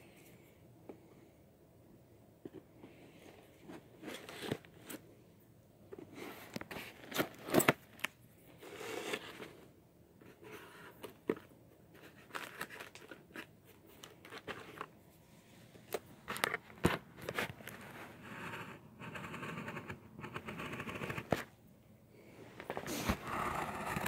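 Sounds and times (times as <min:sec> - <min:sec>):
cardboard box being cut open: 0:22.9 - 0:24.0.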